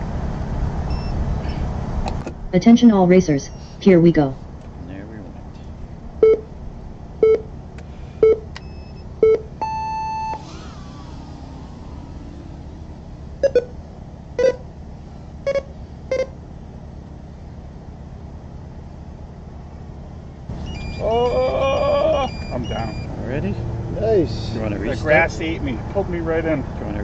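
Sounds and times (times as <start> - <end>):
short electronic beeps: 0.9 - 1.2, 6.2 - 6.5, 7.2 - 7.5, 8.2 - 10.4, 13.4 - 13.8, 14.4 - 14.6, 15.4 - 16.4, 20.6 - 23.2
long high start tone: 8.6 - 16.4, 20.5 - 23.2.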